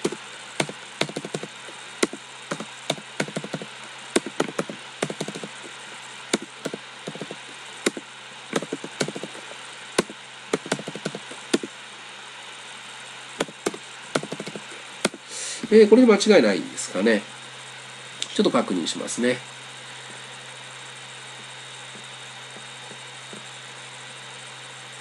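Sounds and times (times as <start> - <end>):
keyboard keys clicking: 0.0 - 5.6, 6.4 - 8.0, 8.6 - 9.4, 10.0 - 11.7, 13.4 - 14.6.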